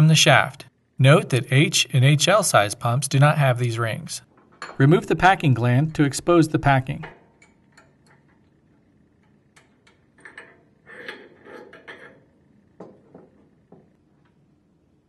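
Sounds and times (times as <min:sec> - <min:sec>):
small metallic clicks and clinks: 0:07.0 - 0:12.2.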